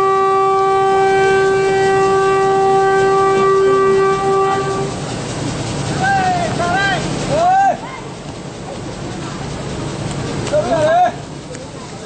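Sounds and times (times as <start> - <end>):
train horn blast: 0.0 - 5.0.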